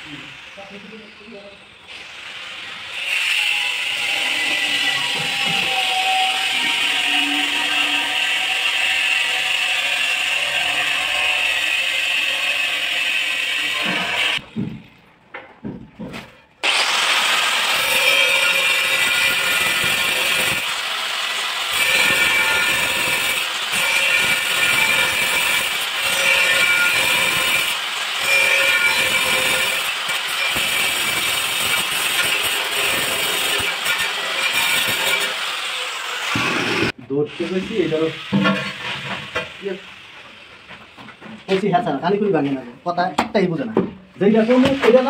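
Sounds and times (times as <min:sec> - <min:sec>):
angle grinder cutting tile: 0:00.0 - 0:14.4, 0:16.6 - 0:39.8.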